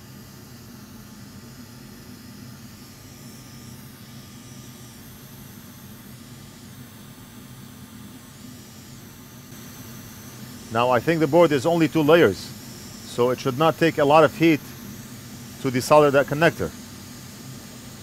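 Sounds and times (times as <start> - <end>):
low fan hum: 9.5 - 18.0.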